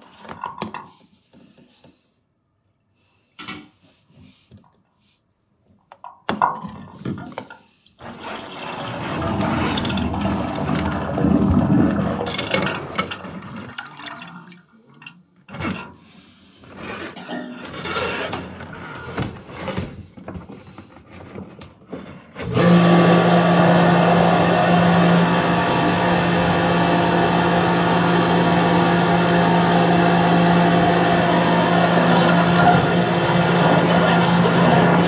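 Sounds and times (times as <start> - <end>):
pressure washer humming: 8.0 - 13.7, 22.4 - 35.0
splashing water: 8.0 - 15.0.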